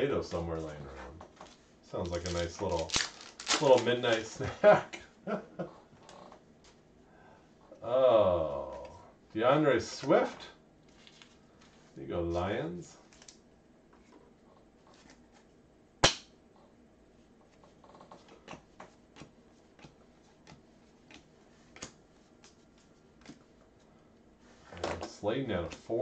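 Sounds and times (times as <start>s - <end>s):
cards flicking off a stack: 2.1s - 4.4s, 16.0s - 16.3s
trading card snapping: 16.0s - 16.3s.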